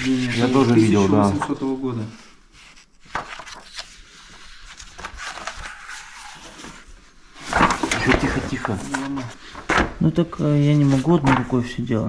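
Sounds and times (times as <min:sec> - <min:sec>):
book pages rustling: 0:02.5 - 0:11.7.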